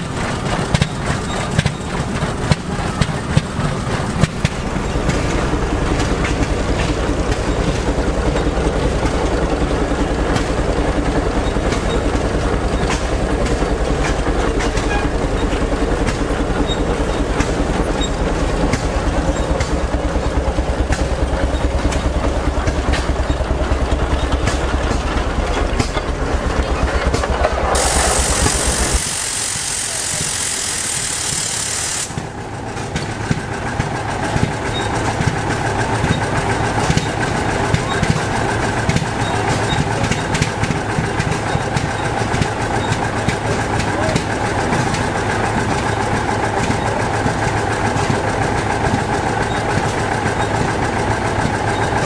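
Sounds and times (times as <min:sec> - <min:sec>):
antique engine running: 0:00.0 - 0:52.0
loud hiss: 0:27.7 - 0:32.2.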